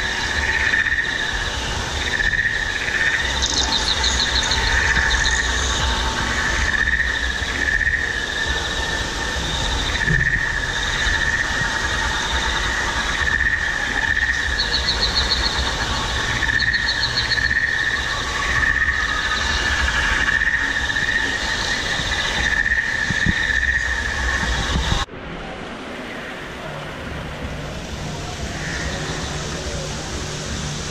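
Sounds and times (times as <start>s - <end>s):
shrill insect drone: 0.0s - 25.1s, 27.6s - 30.9s
rapid trilling chirps: 2.0s - 25.0s.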